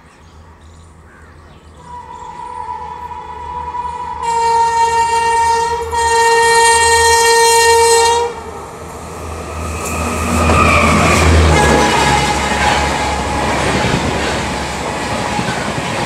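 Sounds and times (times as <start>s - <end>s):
train rumble and wheel noise: 0.0s - 16.0s
train horn long blasts: 1.8s - 8.5s, 9.7s - 14.3s.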